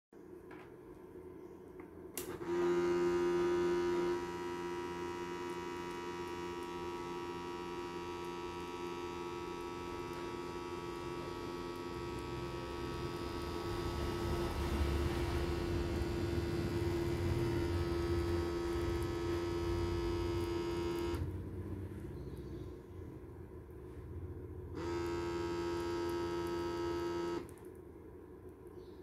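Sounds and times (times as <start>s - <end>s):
blood pressure pump motor hum: 2.2s - 22.0s, 24.7s - 27.6s.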